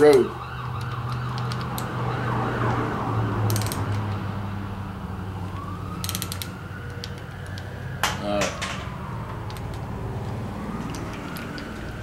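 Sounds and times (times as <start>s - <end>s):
road traffic noise: 0.0s - 12.0s
siren wailing: 0.0s - 12.0s
socket ratchet clicking: 0.7s - 1.9s, 3.5s - 4.2s, 6.0s - 7.7s, 9.4s - 9.9s.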